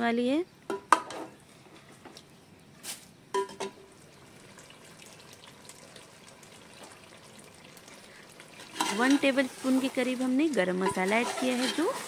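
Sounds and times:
faint sizzle in a pot: 0:00.9 - 0:12.0
metal spoon scraping pot: 0:08.6 - 0:09.4, 0:10.8 - 0:12.0.

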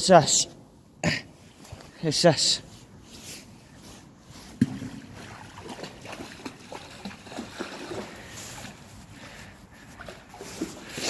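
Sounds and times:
dog splashing through shallow water: 0:04.6 - 0:08.9, 0:09.8 - 0:11.0.

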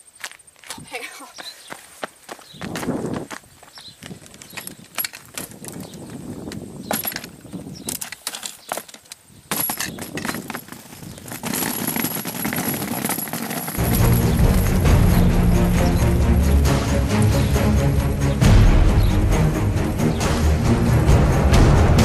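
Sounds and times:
suitcase wheels rolling on tarmac: 0:02.5 - 0:15.4
suitcase clicks and knocks: 0:04.4 - 0:15.2.

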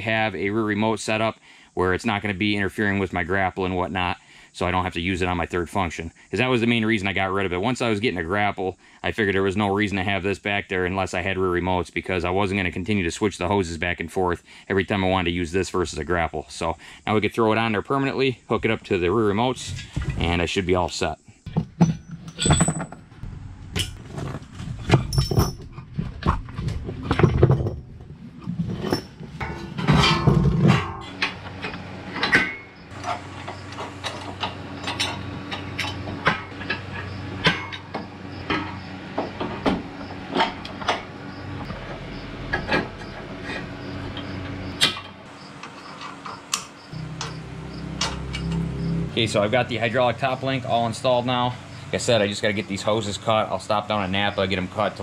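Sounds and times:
metallic clinks and knocks: 0:21.5 - 0:23.2, 0:23.8 - 0:26.4.

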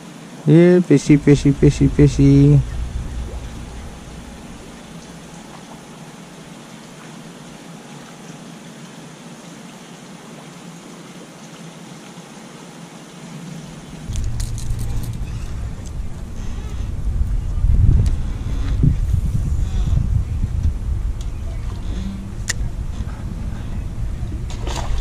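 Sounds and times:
outdoor hiss: 0:00.0 - 0:24.1
low rumble from rod handling: 0:01.2 - 0:05.8, 0:13.6 - 0:25.0.

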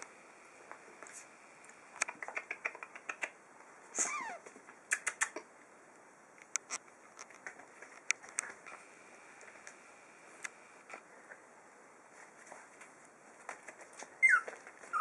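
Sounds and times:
puppy whimpering: 0:04.0 - 0:04.5, 0:14.2 - 0:15.0.

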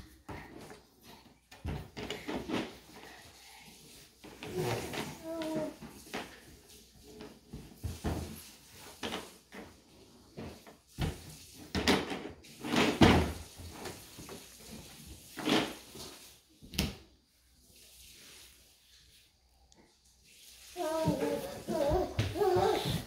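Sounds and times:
hollow plastic knocks and clatters: 0:00.2 - 0:03.0, 0:07.2 - 0:14.0.

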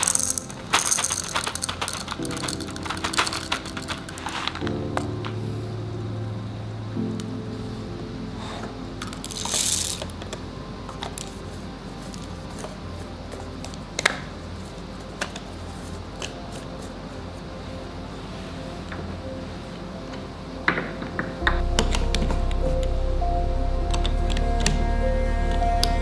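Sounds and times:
coffee beans rattling: 0:00.0 - 0:04.6, 0:09.2 - 0:10.1
low steady hum: 0:00.0 - 0:26.0.

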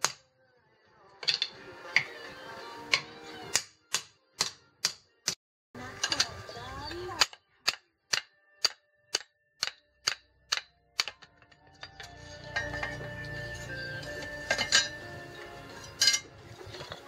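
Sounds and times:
hammer striking steel blade: 0:07.2 - 0:13.8, 0:14.4 - 0:15.0.

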